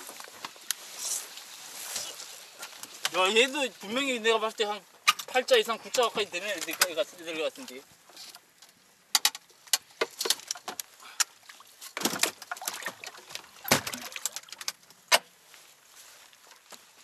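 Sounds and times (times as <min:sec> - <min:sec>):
scraping rustles: 0:00.0 - 0:08.5
fishing tackle clicks and knocks: 0:05.1 - 0:07.1, 0:08.3 - 0:15.2.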